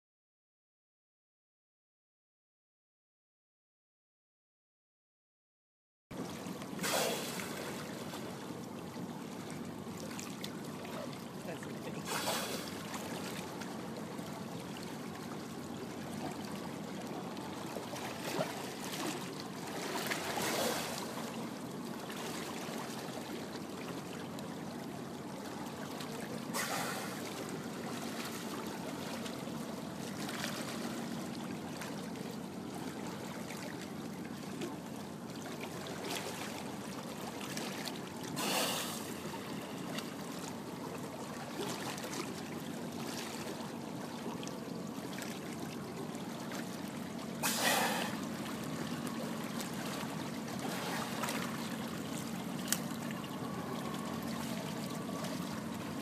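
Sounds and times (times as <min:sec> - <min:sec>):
water rushing along boat side: 0:06.1 - 0:56.0
faint low hum: 0:07.2 - 0:56.0.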